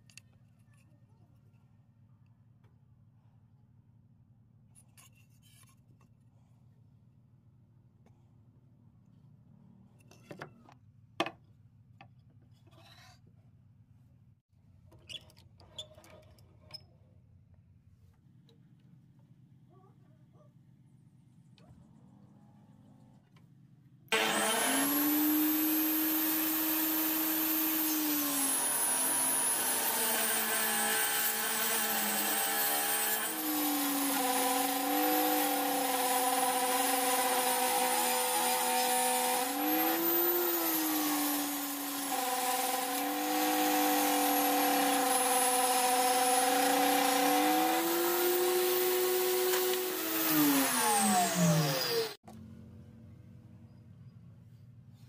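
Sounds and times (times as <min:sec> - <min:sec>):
electric saw cutting wood: 0:24.1 - 0:52.2.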